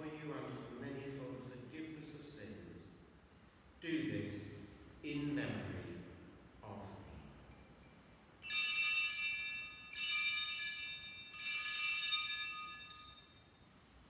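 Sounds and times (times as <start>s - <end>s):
altar bells jingling: 7.5s - 13.6s.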